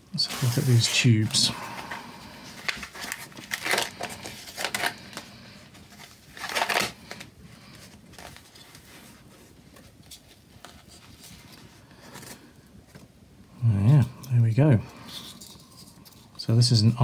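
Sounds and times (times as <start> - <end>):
faint handling noise: 0.1 - 13.2
foam wrap rustling: 0.2 - 12.6.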